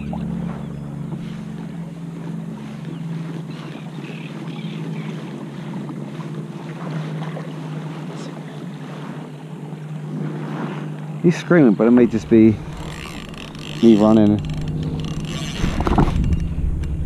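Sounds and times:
steady low hum: 0.0s - 17.0s
water washing along kayak: 0.0s - 17.0s
wind on microphone: 11.9s - 17.0s.

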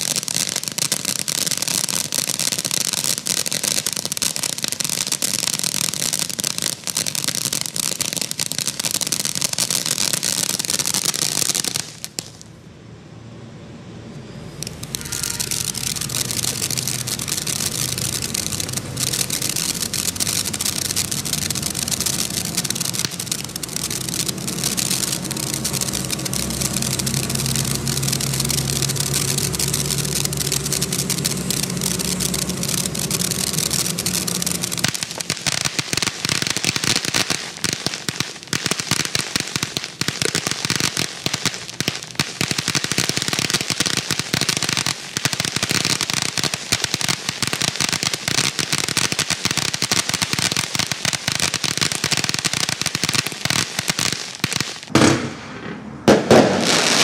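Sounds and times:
loud firework bangs: 0.0s - 12.4s, 14.6s - 57.0s
firework fountain rushing spray: 0.0s - 12.5s, 14.5s - 57.0s
firework crackling: 0.0s - 12.6s, 14.5s - 57.0s.

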